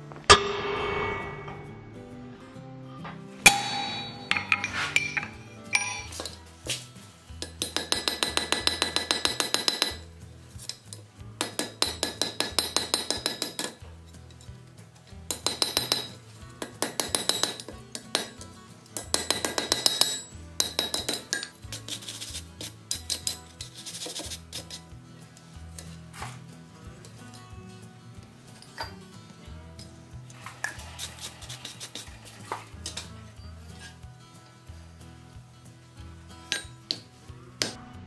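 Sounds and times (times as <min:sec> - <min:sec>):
hammer forging iron on anvil: 0:00.3 - 0:02.2, 0:03.5 - 0:06.3, 0:15.3 - 0:18.4, 0:19.0 - 0:21.5.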